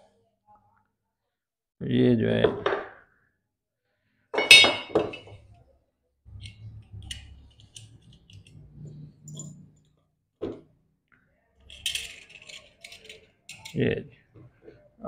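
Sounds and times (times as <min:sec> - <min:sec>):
pistol parts clicking and clinking: 0:06.4 - 0:09.9, 0:11.7 - 0:13.8.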